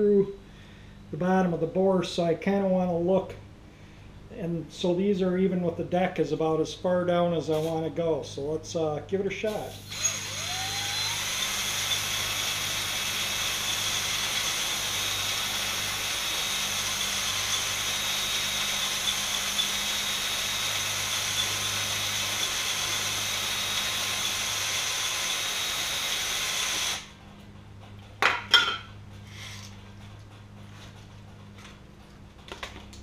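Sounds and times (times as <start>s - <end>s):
drill honing whirring hiss: 9.5s - 27.1s.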